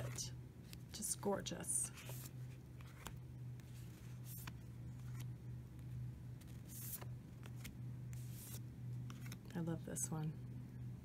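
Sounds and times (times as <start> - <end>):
steady low hum: 0.0 - 11.0
cards sliding onto a pile: 6.4 - 9.5.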